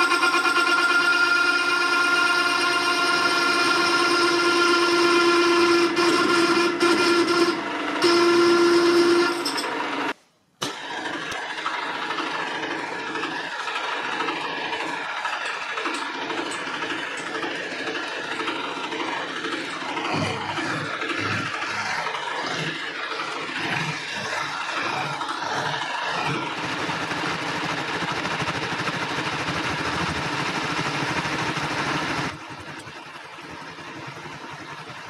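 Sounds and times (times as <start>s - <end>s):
saw blade rasping through metal: 12.6s - 27.8s.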